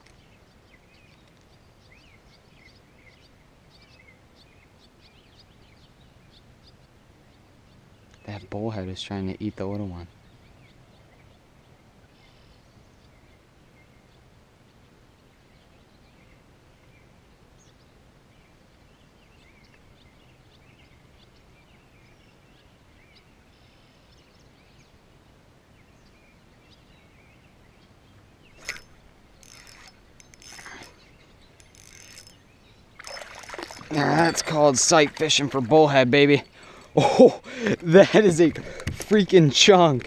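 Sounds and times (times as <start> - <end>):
bird chirps: 26.0 - 35.5
fishing reel cranking: 28.6 - 31.0, 31.6 - 32.4, 33.0 - 34.0
sharp click: 28.6 - 31.0.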